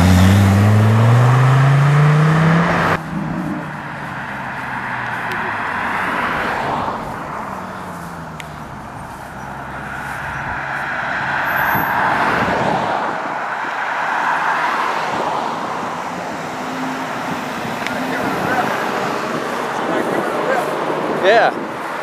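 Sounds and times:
car engine at low revs: 0.0s - 11.0s
road noise hiss: 0.0s - 22.0s.

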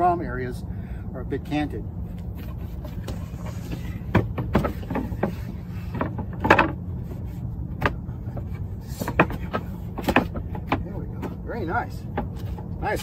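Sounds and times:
steady low hum: 0.0s - 13.0s
wood scraping: 2.1s - 13.0s
wood-on-wood knocks: 2.8s - 6.8s, 7.8s - 12.8s.

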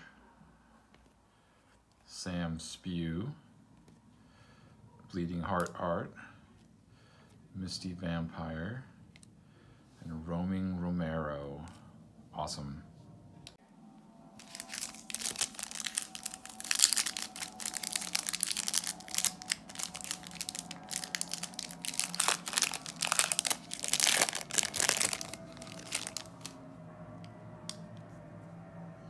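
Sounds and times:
foil wrapper crinkling and tearing: 14.4s - 26.6s.

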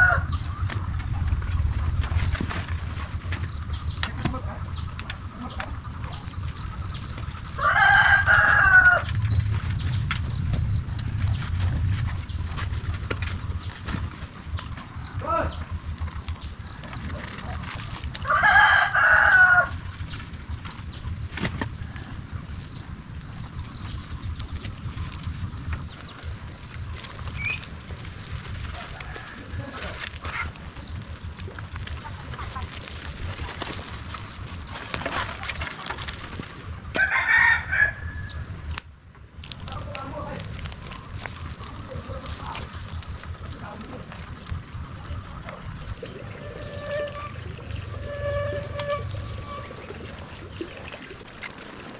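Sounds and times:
rooster crowing: 0.0s - 0.4s, 7.5s - 9.4s, 18.2s - 19.9s, 28.6s - 30.1s, 36.9s - 38.5s
high-pitched insect buzz: 0.0s - 51.9s.

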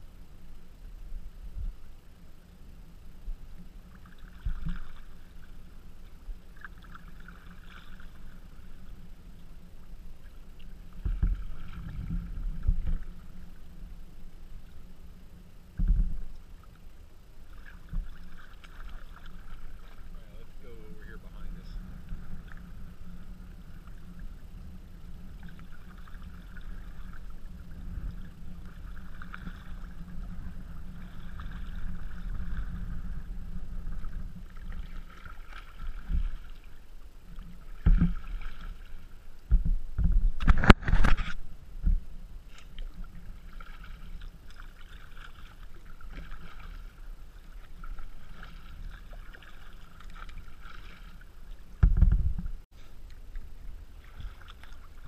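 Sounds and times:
low microphone rumble: 0.0s - 55.0s
water splashing around bow: 1.0s - 55.0s
paddle strokes swishing: 17.4s - 22.8s, 42.4s - 51.8s, 52.7s - 55.0s.

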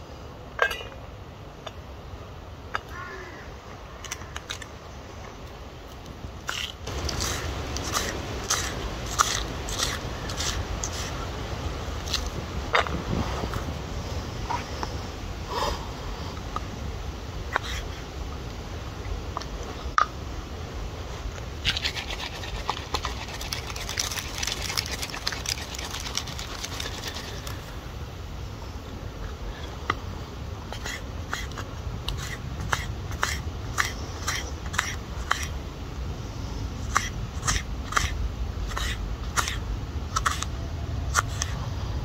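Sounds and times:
rustling: 21.1s - 27.8s.

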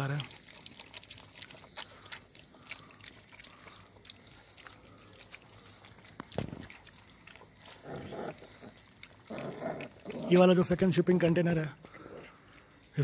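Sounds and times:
dogs chewing and lapping: 0.0s - 13.0s
dog grunting: 7.7s - 10.6s.

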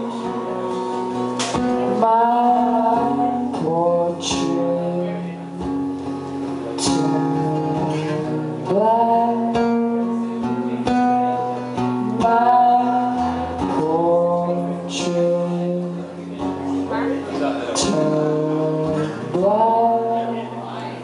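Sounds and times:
man singing: 0.0s - 5.7s, 6.8s - 21.0s
acoustic guitar strumming: 0.0s - 21.0s.

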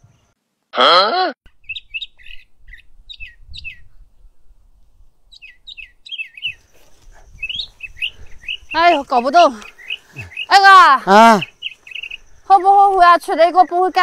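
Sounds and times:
voiced exclamation: 0.8s - 1.4s, 10.1s - 11.6s
songbirds chirping: 1.5s - 14.0s.

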